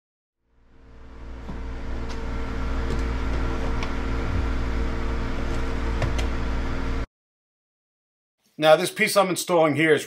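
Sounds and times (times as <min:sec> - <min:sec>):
low mechanical hum: 0:00.5 - 0:07.1.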